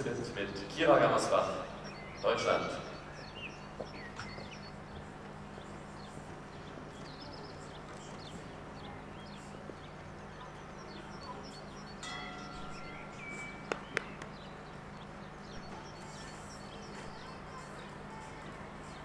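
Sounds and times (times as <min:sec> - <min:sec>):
small birds chirping: 0:00.0 - 0:19.0
steady low hum: 0:00.0 - 0:19.0
ringing chime: 0:11.9 - 0:13.7.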